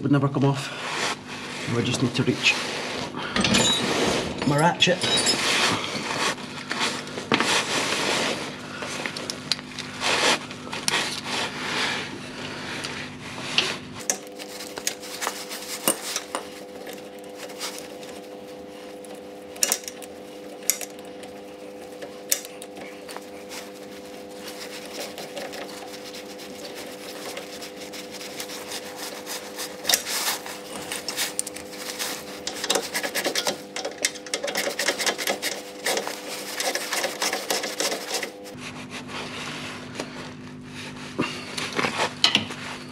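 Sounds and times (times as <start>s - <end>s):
steady hum: 0.0s - 42.9s
tool handling and rubbing: 0.7s - 42.9s.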